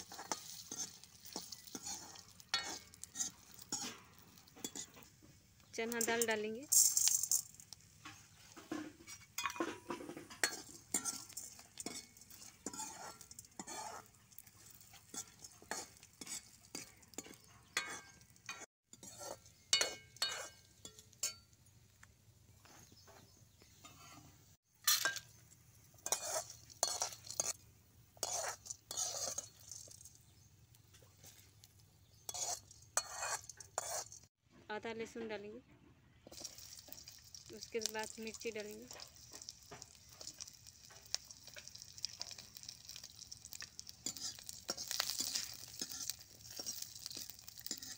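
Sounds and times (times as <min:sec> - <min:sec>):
ladle scraping a metal pan: 0:00.0 - 0:05.2, 0:08.0 - 0:21.4, 0:25.9 - 0:27.6, 0:28.2 - 0:30.1, 0:32.1 - 0:34.3, 0:38.9 - 0:47.9
light sizzle of frying: 0:00.0 - 0:35.6, 0:36.2 - 0:47.9.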